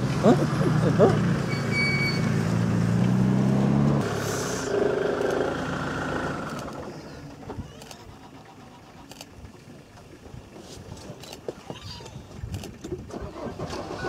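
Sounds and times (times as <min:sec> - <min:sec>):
vehicle engine idling: 0:00.0 - 0:03.1, 0:03.8 - 0:11.4.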